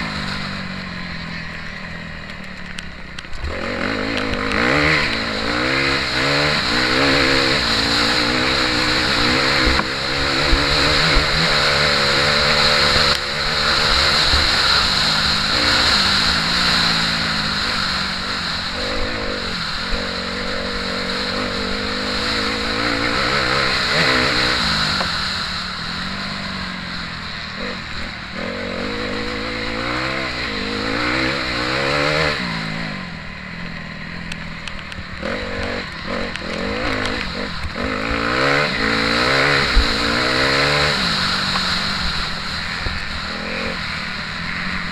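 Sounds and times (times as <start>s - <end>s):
motorbike engine revving: 0.0s - 44.9s.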